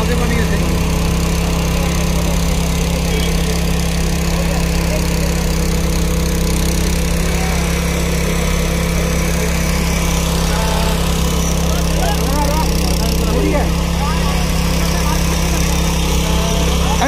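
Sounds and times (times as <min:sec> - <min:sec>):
engine humming steadily: 0:00.0 - 0:17.0.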